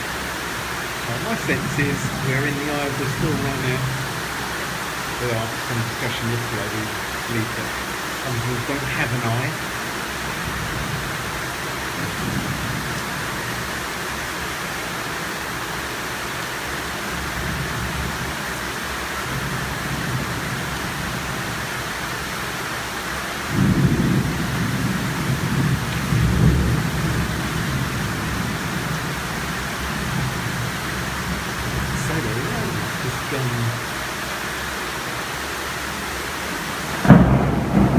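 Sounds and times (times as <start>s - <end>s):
heavy rain falling: 0.0s - 37.9s
thunder rumbling: 1.0s - 13.7s, 23.5s - 33.9s, 36.6s - 37.9s.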